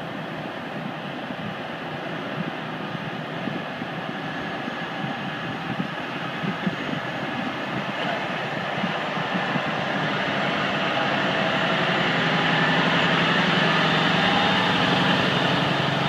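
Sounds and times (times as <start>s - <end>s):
water washing around wheels: 4.3s - 16.0s
diesel truck engine running: 5.0s - 16.0s.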